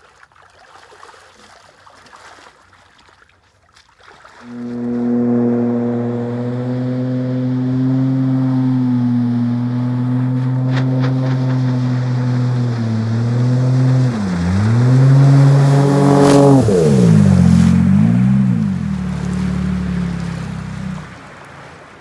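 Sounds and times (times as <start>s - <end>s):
rush of water spray: 4.2s - 22.0s
outboard boat engine running hard: 4.4s - 21.7s.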